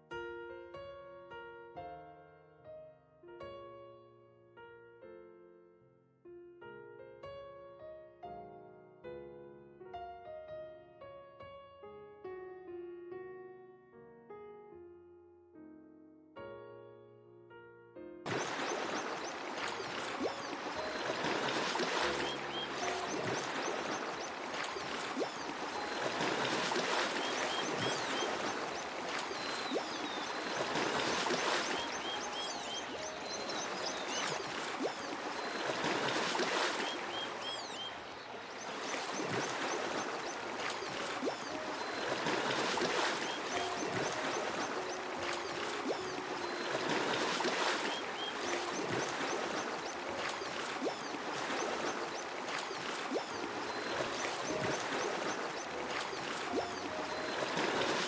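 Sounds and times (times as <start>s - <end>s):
flowing water: 18.3s - 58.0s
high bird chirps: 18.4s - 42.2s, 42.8s - 47.1s, 47.8s - 57.9s.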